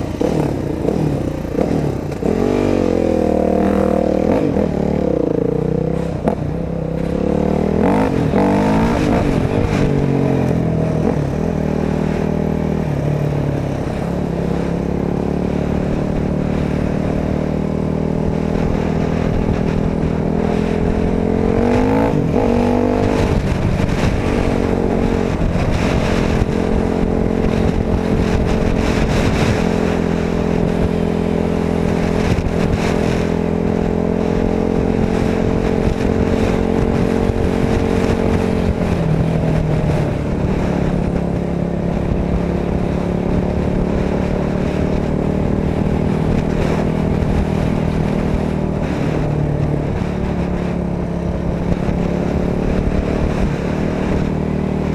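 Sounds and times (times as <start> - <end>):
dirt bike engine revving: 0.0 - 12.6, 18.0 - 38.7.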